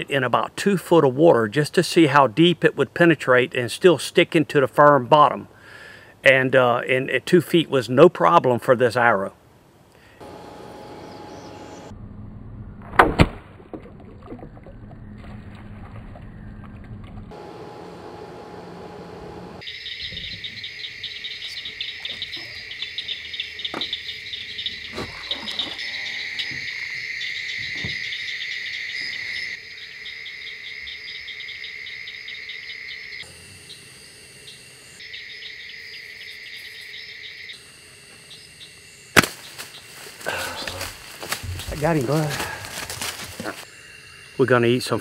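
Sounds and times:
insects trilling: 19.6s - 45.0s.

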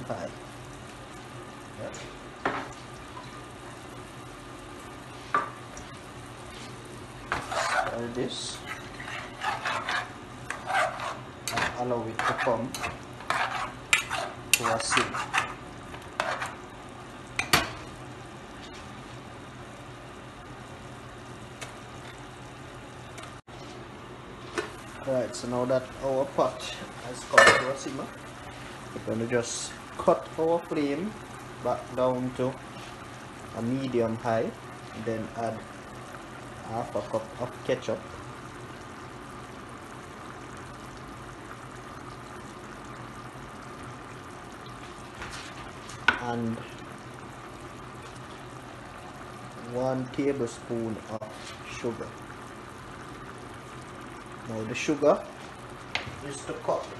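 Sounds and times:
stew sizzling: 0.0s - 56.9s
spoon scraping metal pan: 7.3s - 15.6s, 16.2s - 16.6s.

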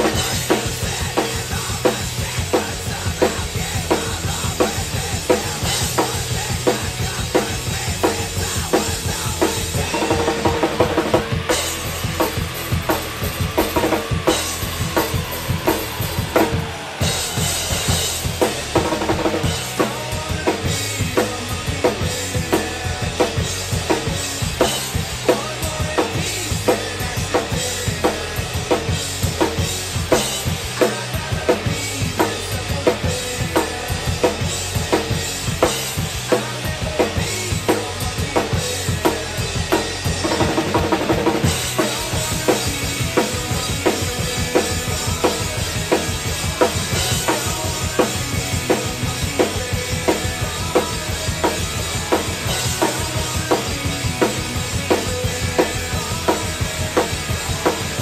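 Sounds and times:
rock backing track: 0.0s - 58.0s
crashing cymbals: 11.5s - 20.1s.

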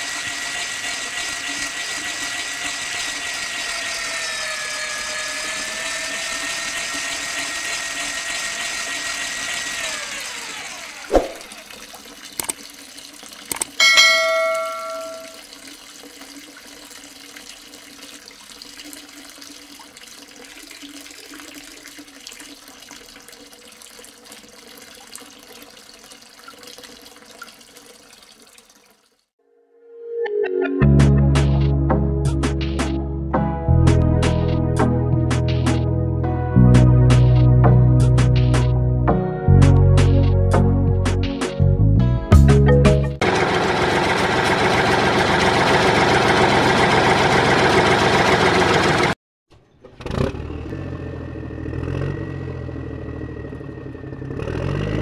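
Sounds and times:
small electric motor whining: 0.0s - 11.1s
water trickling into a puddle: 0.0s - 29.3s
short bell-like ring: 13.8s - 15.4s.

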